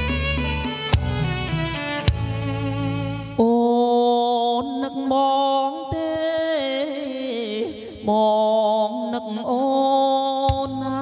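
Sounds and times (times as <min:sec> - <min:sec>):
man singing with echo and reverb: 0:03.3 - 0:11.0.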